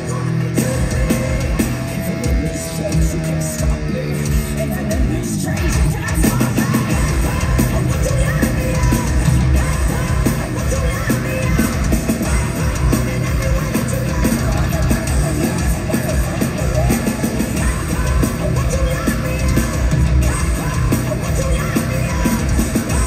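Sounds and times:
heavy metal band playing live: 0.0s - 23.0s.

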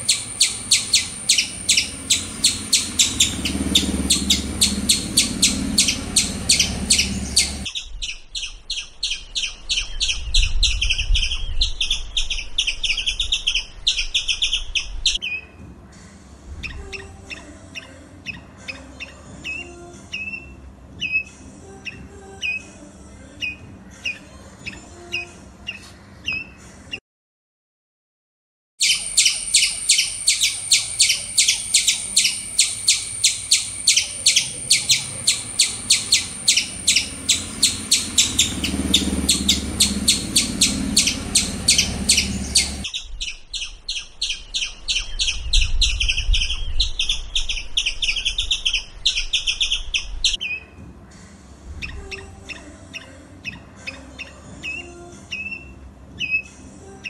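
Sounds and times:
squirrel chirping and chattering: 0.0s - 15.4s, 28.8s - 50.6s.

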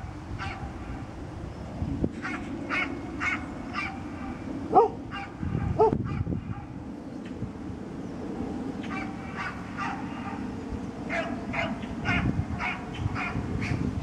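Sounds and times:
dog barking: 0.4s - 0.7s, 2.3s - 4.0s, 4.7s - 6.7s, 8.9s - 10.4s, 11.1s - 13.8s.

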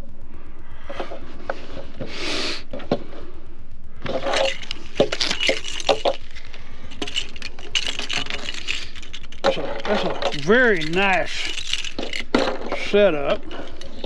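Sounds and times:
steady low rumble: 0.0s - 14.0s
small parts clicking and knocking: 4.0s - 14.0s
plastic packaging crinkling: 4.1s - 14.0s.

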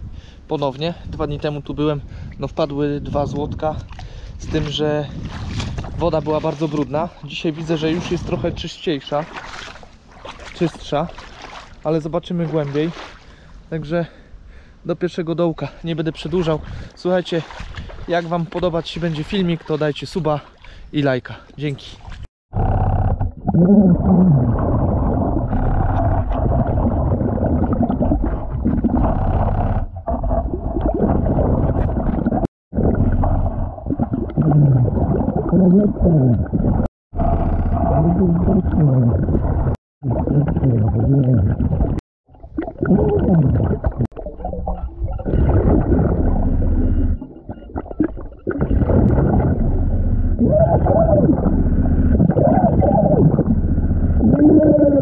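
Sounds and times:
underwater rumbling and bubbling: 22.2s - 55.0s.

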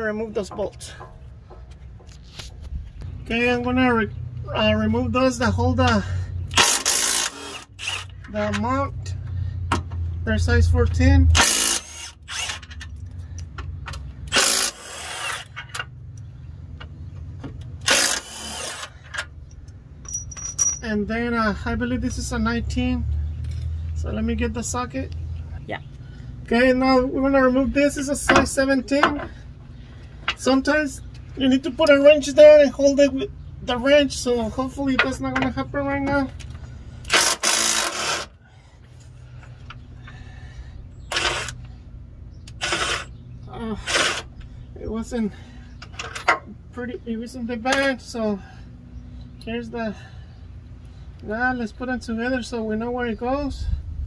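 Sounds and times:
ratchet rasping bursts: 6.5s - 8.2s, 11.4s - 12.8s, 14.2s - 15.6s, 17.8s - 19.1s, 37.0s - 38.4s, 41.0s - 41.7s, 42.4s - 43.1s
steady low hum: 9.0s - 54.0s.

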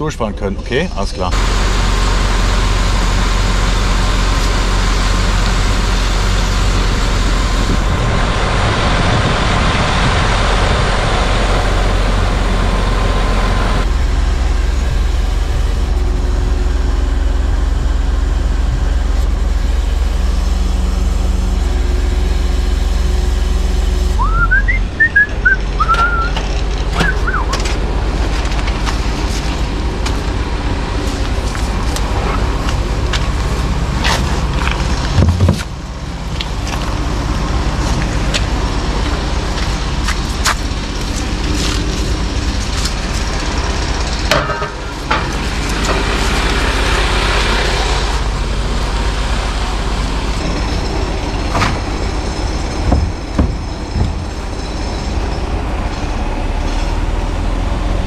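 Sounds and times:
truck diesel engine running: 0.0s - 58.0s
short rising squeaks: 19.2s - 27.6s.

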